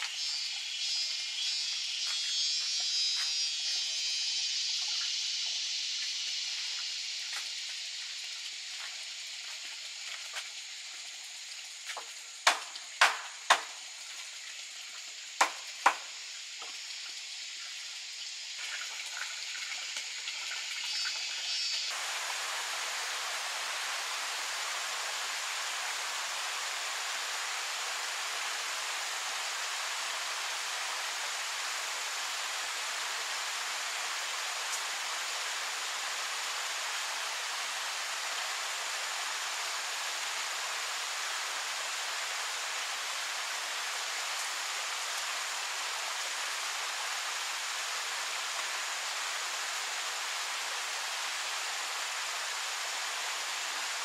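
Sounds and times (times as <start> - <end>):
high steady hiss: 0.0 - 54.0
knocks on bamboo: 12.4 - 13.8, 15.4 - 16.1.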